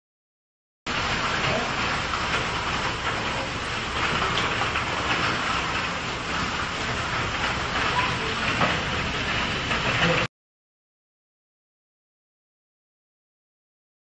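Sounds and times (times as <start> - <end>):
hailstones pelting wet pavement: 0.9 - 10.3.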